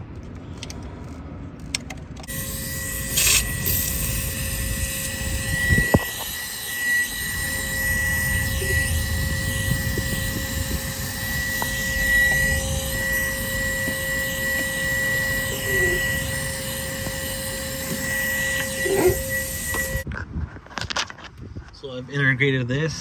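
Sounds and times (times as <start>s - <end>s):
vacuum whining: 2.2s - 20.1s.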